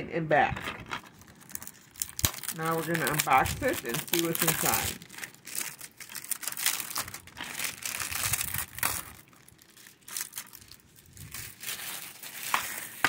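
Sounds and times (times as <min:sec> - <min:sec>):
plastic shrink-wrap crinkling: 0:00.6 - 0:13.0.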